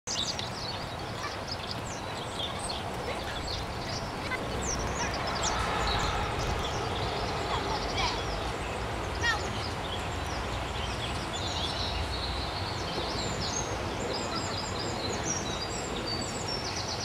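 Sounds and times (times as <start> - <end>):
small birds chirping: 0.1 - 17.0
low rumble: 3.5 - 8.5.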